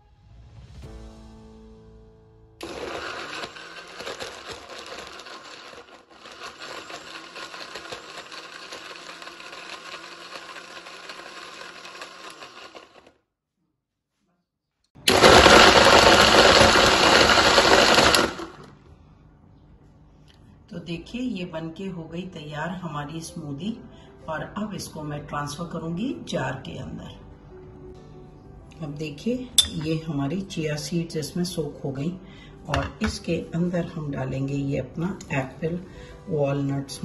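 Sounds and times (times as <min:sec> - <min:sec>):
mixer grinder motor whirring: 0:02.6 - 0:13.1, 0:15.0 - 0:18.7.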